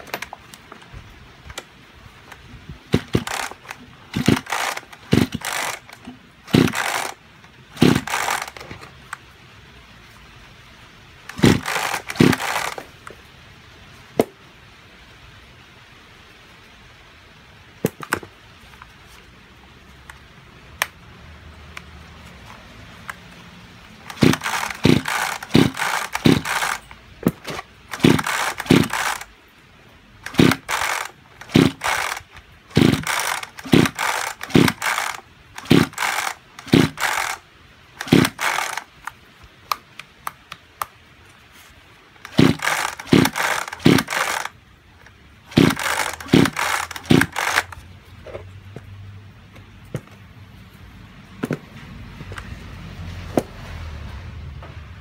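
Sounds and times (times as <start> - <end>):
chainsaw engine turning over: 0.0 - 9.2, 11.2 - 13.1, 22.3 - 29.4, 30.2 - 39.9, 42.2 - 48.5
recoil starter rope rasping: 2.3 - 9.0, 11.3 - 12.9, 23.9 - 29.4, 30.2 - 37.4, 38.0 - 39.2, 41.5 - 48.5.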